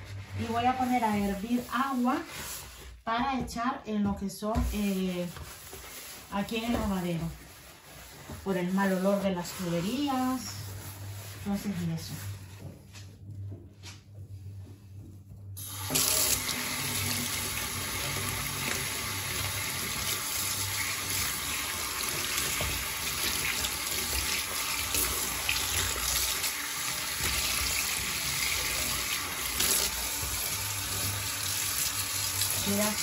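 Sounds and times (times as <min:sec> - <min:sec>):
tap water running into sink: 0:15.6 - 0:33.0.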